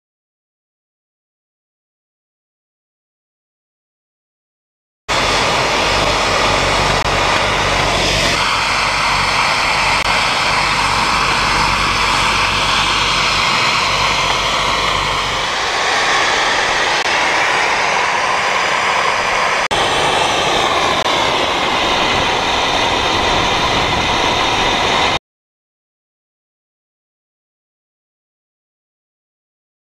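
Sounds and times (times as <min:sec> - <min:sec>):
snowmaking guns hissing: 0:05.1 - 0:25.2.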